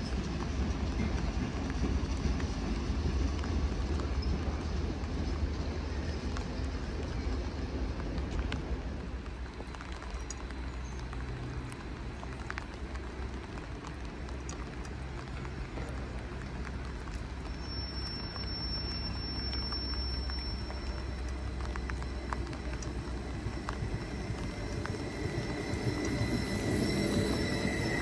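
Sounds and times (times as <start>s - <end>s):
steady hiss: 0.0s - 28.0s
train rumble: 0.0s - 28.0s
high thin train squeal: 17.0s - 28.0s.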